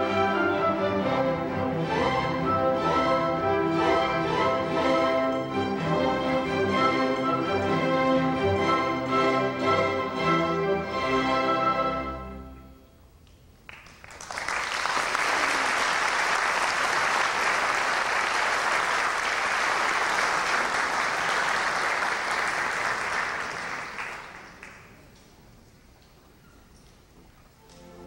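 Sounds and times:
audience applauding: 0:13.7 - 0:25.1.

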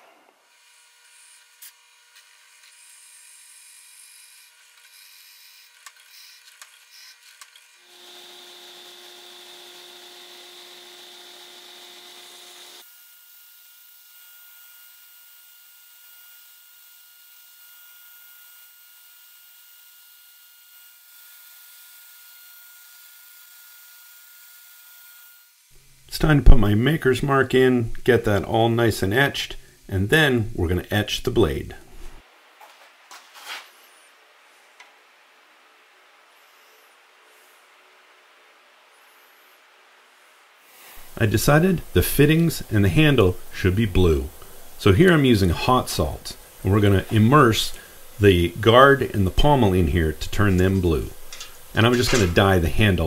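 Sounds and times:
drill press motor hum: 0:00.5 - 0:12.9
belt grinder sanding wood: 0:00.5 - 0:25.7, 0:40.7 - 0:53.0.

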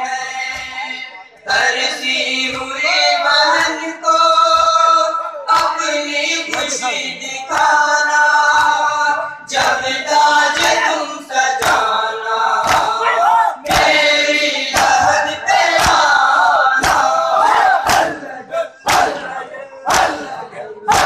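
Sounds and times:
men chanting a lament: 0:00.0 - 0:21.0
hands slapping on chests: 0:05.5 - 0:05.8, 0:06.5 - 0:06.8, 0:07.5 - 0:07.8, 0:10.5 - 0:10.9, 0:11.5 - 0:12.0, 0:12.6 - 0:14.0, 0:14.7 - 0:16.2, 0:16.8 - 0:18.2, 0:18.8 - 0:19.3, 0:19.9 - 0:20.3.

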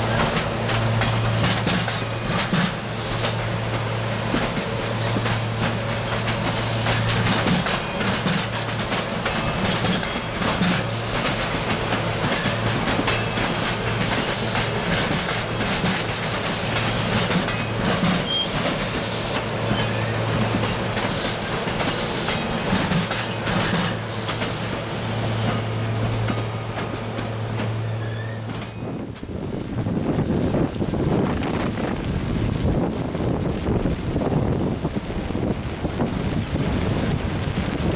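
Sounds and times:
wheels clicking over rails: 0:00.0 - 0:29.3
electric train passing: 0:00.0 - 0:37.9.

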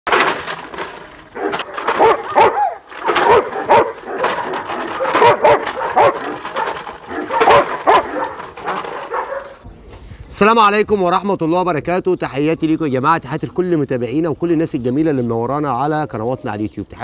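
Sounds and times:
dog barking: 0:01.4 - 0:09.6.

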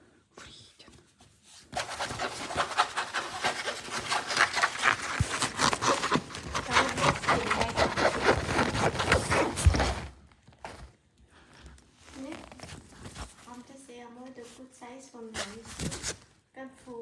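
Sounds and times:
fur rubbing against microphone: 0:01.3 - 0:10.1, 0:12.0 - 0:13.6
cat licking fur: 0:01.8 - 0:09.5.

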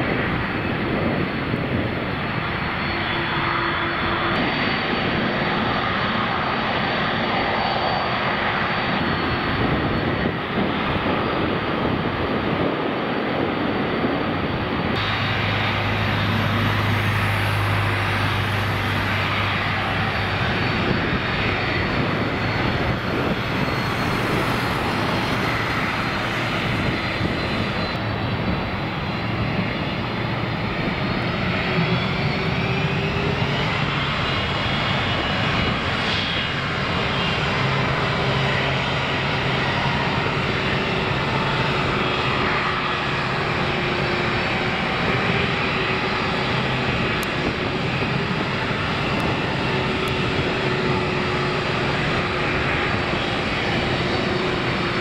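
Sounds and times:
high engine whine: 0:00.0 - 0:55.0
jet engines rumbling: 0:00.0 - 0:55.0.

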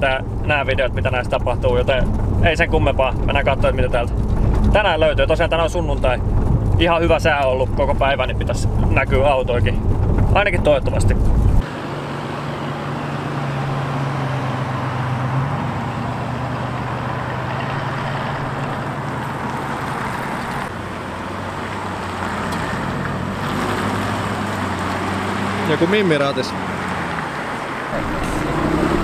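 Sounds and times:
low engine hum: 0:00.0 - 0:29.0
cars driving past: 0:11.0 - 0:29.0.

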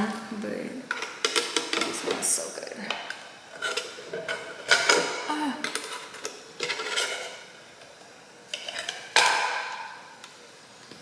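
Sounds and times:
hard objects knocking and rattling: 0:00.9 - 0:02.2, 0:08.6 - 0:09.9.

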